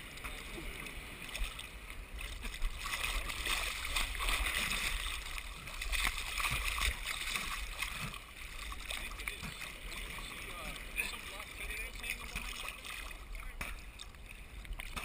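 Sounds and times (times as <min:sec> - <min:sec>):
seawater sloshing and splashing: 0:00.0 - 0:15.0.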